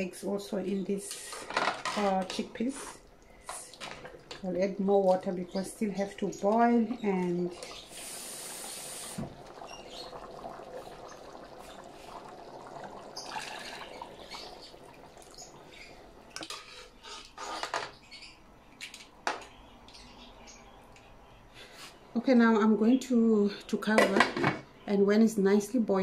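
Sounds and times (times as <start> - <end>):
liquid sloshing: 7.1 - 17.4
water pouring into pan: 7.5 - 16.9.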